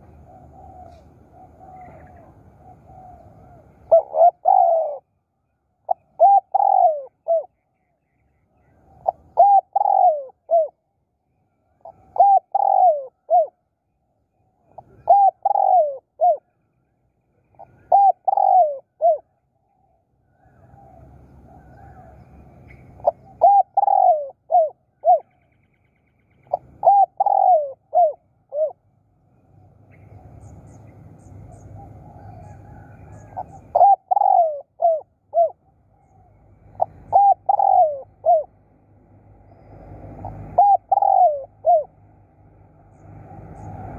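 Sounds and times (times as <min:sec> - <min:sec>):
dove cooing: 0:00.0 - 0:05.2, 0:05.8 - 0:07.6, 0:08.7 - 0:10.8, 0:11.8 - 0:13.6, 0:14.6 - 0:16.5, 0:17.5 - 0:19.4, 0:20.3 - 0:25.3, 0:26.4 - 0:28.8, 0:29.5 - 0:38.6, 0:39.3 - 0:42.1.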